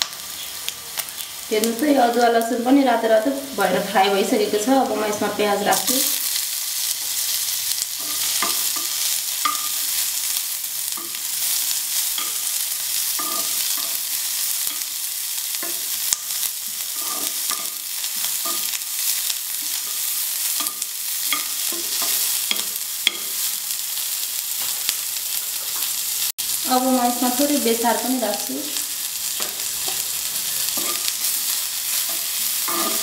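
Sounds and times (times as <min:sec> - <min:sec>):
onion sizzling in oil: 0:00.0 - 0:33.0
metal spoon scraping pan: 0:08.0 - 0:09.9, 0:12.1 - 0:14.9, 0:16.7 - 0:18.8, 0:29.4 - 0:33.0.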